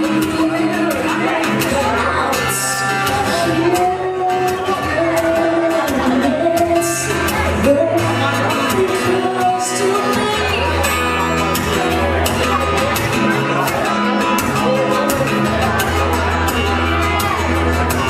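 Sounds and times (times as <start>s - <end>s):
woman singing: 0.0s - 11.1s
strummed acoustic guitar: 0.0s - 18.0s.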